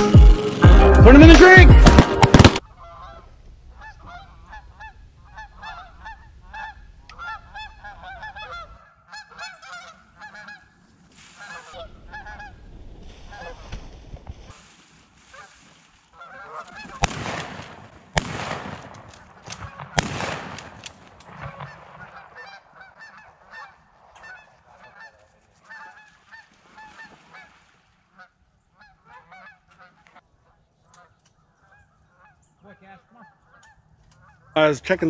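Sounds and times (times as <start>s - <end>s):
geese honking: 0.8s - 13.8s, 15.3s - 17.5s, 21.4s - 34.8s
shotgun blast: 1.8s - 2.6s, 17.0s - 19.0s, 19.6s - 22.2s.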